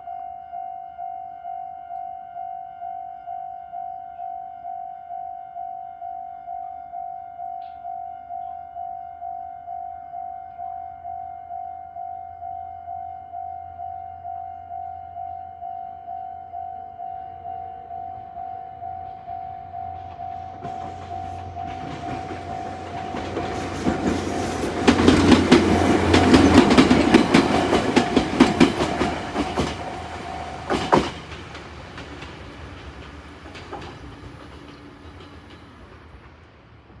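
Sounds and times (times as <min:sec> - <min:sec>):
level crossing warning bell: 0:00.0 - 0:31.0
train wheels clacking on rails: 0:19.0 - 0:37.0.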